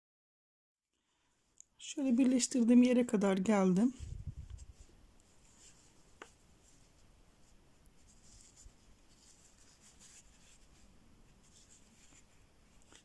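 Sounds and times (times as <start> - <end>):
crochet hook scratching yarn: 4.5 - 13.0.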